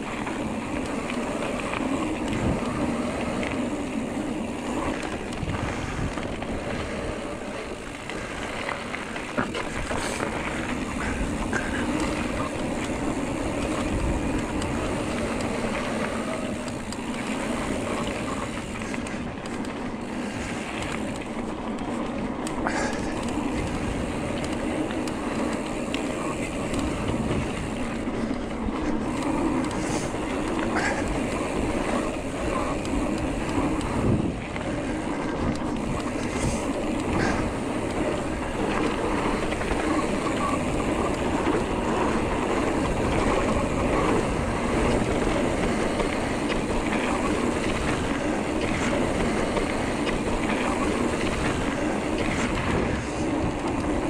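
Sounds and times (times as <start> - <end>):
bike rattling: 0.0 - 54.0
tyre noise on dirt: 0.0 - 54.0
wind on microphone: 1.8 - 3.5, 4.2 - 7.5, 26.1 - 54.0.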